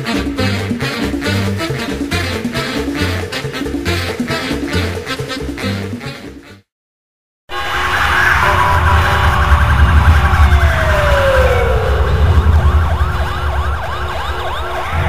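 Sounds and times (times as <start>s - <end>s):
emergency sirens wailing: 7.5s - 15.0s
siren yelp: 7.5s - 15.0s
deep steady rumble: 8.5s - 15.0s.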